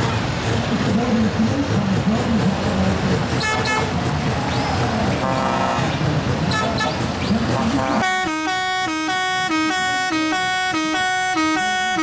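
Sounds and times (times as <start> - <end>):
steady low rumble: 0.1 - 8.0
truck air horns honking: 3.3 - 4.0, 5.1 - 12.0.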